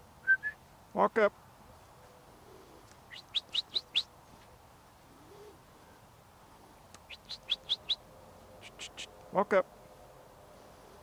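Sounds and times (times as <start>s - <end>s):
herding whistle short rising notes: 0.2s - 0.6s.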